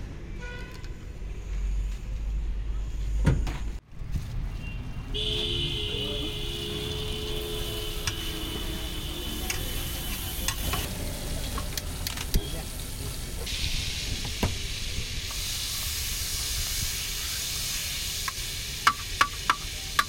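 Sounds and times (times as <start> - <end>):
street traffic rumble: 0.0 - 20.0
hot oil sizzling: 6.2 - 20.0.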